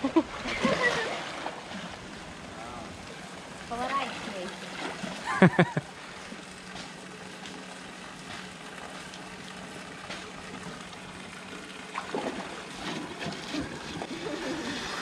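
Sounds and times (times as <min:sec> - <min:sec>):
faint steady hum: 0:00.0 - 0:15.0
pool water trickling and lapping: 0:00.0 - 0:15.0
water splashes or knocks: 0:11.9 - 0:14.1.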